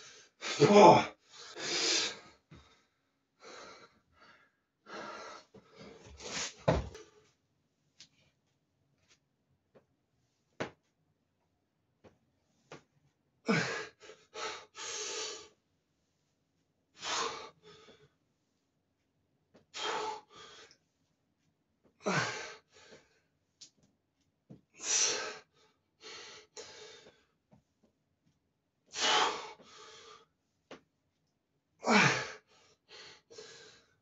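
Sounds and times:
man breathing hard: 0.0 - 7.1, 13.5 - 15.6, 17.0 - 18.1, 19.7 - 20.8, 22.0 - 23.2, 24.8 - 27.3, 28.9 - 30.3, 31.8 - 34.0.

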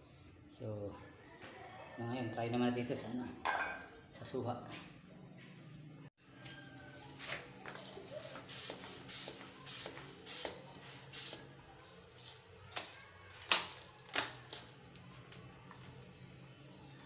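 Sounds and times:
toy gun pump hissing strokes: 8.2 - 11.5.

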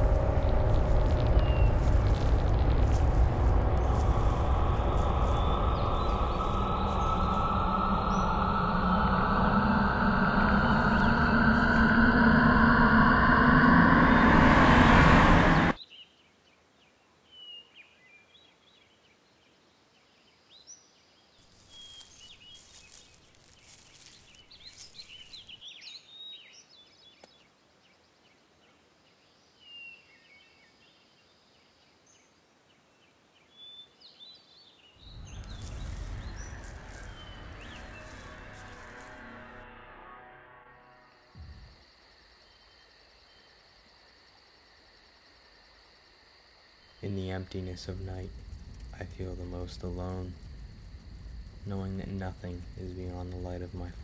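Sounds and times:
loud rushing noise: 0.0 - 15.8, 35.0 - 39.9.

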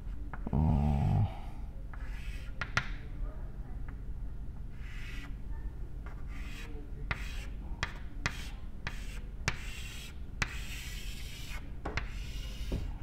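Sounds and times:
chalk scratching: 1.9 - 2.8, 4.7 - 5.4, 6.1 - 13.0
chalk tapping on blackboard: 1.9 - 3.0, 6.0 - 13.0.

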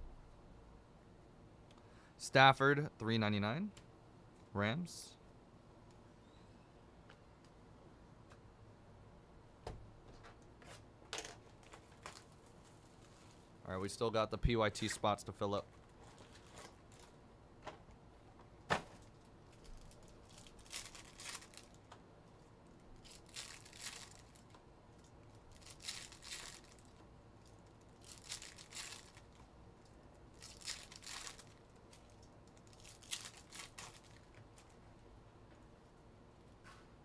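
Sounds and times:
foil wrappers tearing: 19.6 - 21.8, 23.0 - 24.4, 25.5 - 27.0, 28.0 - 29.4, 30.3 - 34.4.

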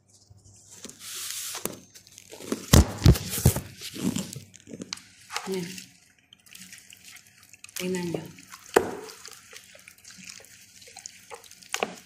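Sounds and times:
crinkly rustle: 0.0 - 7.9.

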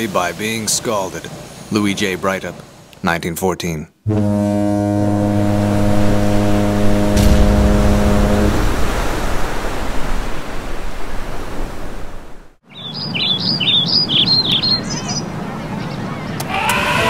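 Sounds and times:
sea surf rushing: 0.0 - 2.9, 4.1 - 12.6, 14.8 - 17.0
birds chirping: 12.6 - 16.9.

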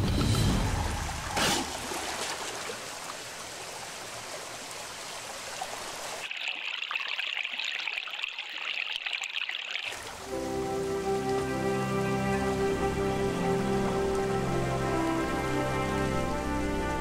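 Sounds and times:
trickling running water: 0.0 - 17.0
water rushing under sluice gate: 0.0 - 17.0.

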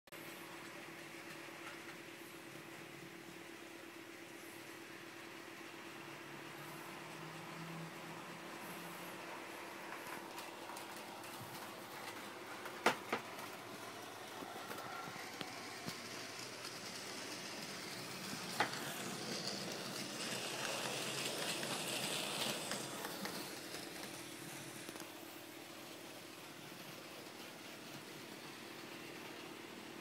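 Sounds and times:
model train motor whir: 10.0 - 25.0.

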